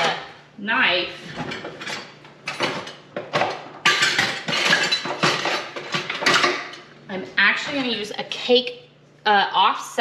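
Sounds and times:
metal utensils clinking and scraping: 1.4 - 6.8.

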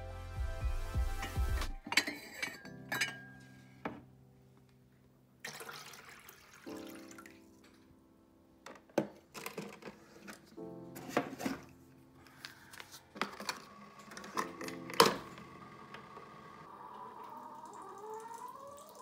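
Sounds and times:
background music: 0.0 - 4.5, 10.3 - 16.6
ceramic mugs clinking: 1.8 - 3.4.

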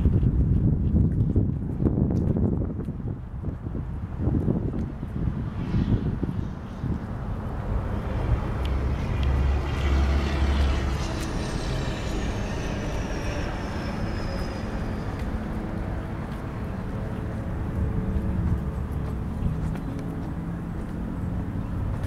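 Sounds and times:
vehicle passing rumble: 0.0 - 22.0
high whine falling in pitch: 9.4 - 16.2.

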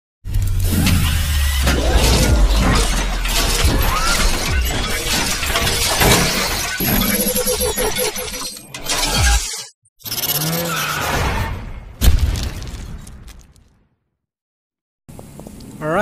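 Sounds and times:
music: 0.3 - 6.5
low bass rumble: 1.2 - 5.1
crashing shattering hits: 1.4 - 7.2.

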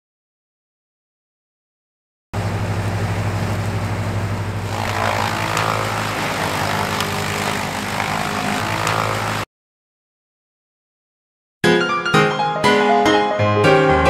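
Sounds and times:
electric planer motor hum: 2.4 - 9.5
wood being planed: 4.6 - 9.5.

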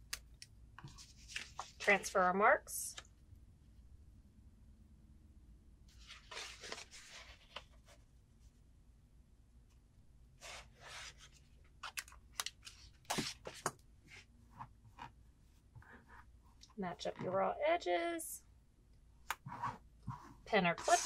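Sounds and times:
paper and fabric rustling: 5.9 - 8.0, 19.6 - 21.0
pen drawing: 19.4 - 21.0.

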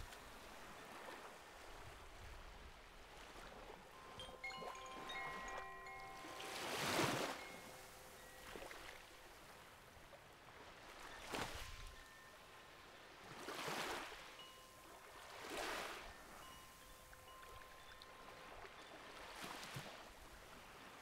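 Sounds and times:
faint bell tones: 3.7 - 9.8, 11.0 - 12.7, 14.4 - 21.0
waves washing on beach: 6.2 - 11.9.

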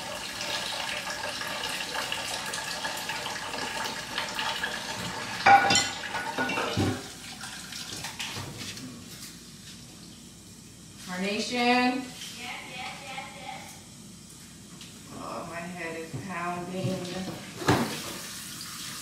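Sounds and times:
tap running into sink: 4.9 - 7.1, 16.8 - 18.3
dishes clanking: 5.0 - 7.1.

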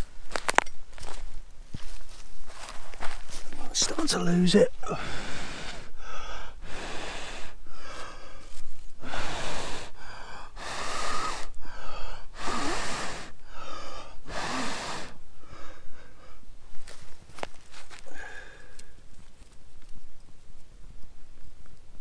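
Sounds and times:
quick breaths drawn in: 4.8 - 19.1
man blowing into stove: 4.9 - 8.4, 9.0 - 15.2.

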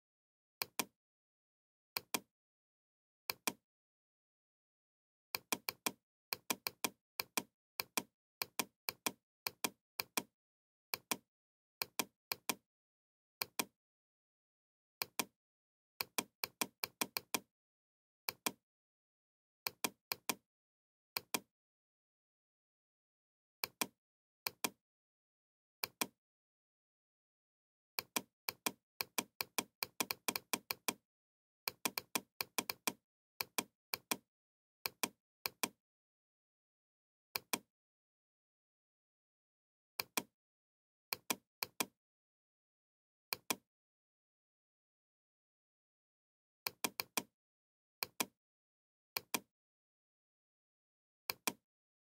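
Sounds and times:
computer mouse clicking: 2.0 - 2.3, 5.4 - 10.3, 11.8 - 12.6, 16.0 - 17.5, 18.3 - 18.6, 21.2 - 21.5, 23.6 - 24.8, 28.0 - 31.0, 31.7 - 34.2, 37.4 - 37.7, 40.0 - 40.3, 41.1 - 41.9, 43.3 - 43.6, 46.7 - 47.3, 48.0 - 48.3, 49.2 - 49.5, 51.3 - 51.6.

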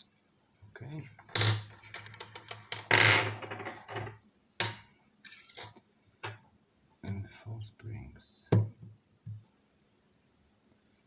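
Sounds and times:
metal parts rattling: 1.3 - 2.8
small metal parts clinking: 1.3 - 2.9, 5.2 - 5.8.

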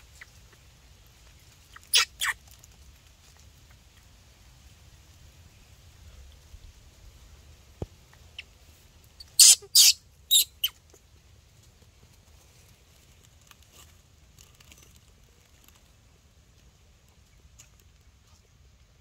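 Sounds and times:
baby monkey shrill squeals: 1.7 - 2.4, 9.2 - 10.8.

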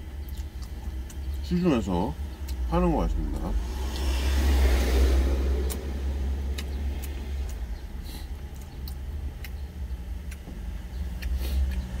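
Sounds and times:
chewing: 0.2 - 1.4, 5.5 - 12.0.

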